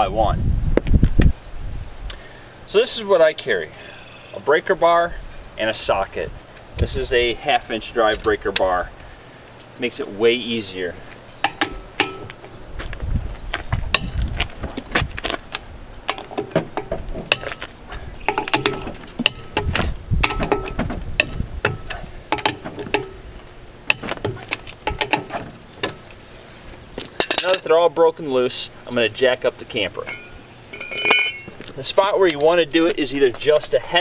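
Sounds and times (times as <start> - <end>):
breaker bar loosening lug nuts: 11.4 - 12.6, 15.5 - 26.2, 30.0 - 32.6.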